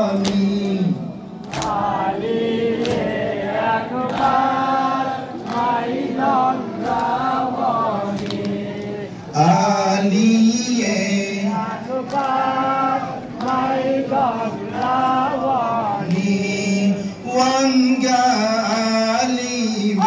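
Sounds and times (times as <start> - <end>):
man chanting a lament: 0.0 - 2.2, 9.2 - 13.3, 14.0 - 20.0.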